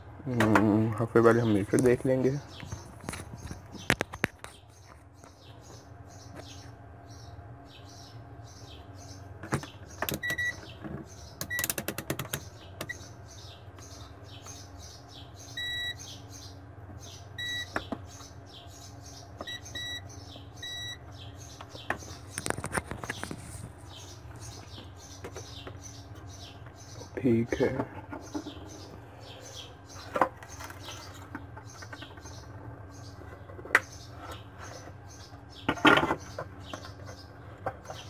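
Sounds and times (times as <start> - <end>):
multimeter continuity beeps: 10.1 - 10.6, 11.4 - 11.8, 15.5 - 16.1, 17.4 - 17.8, 19.4 - 21.0.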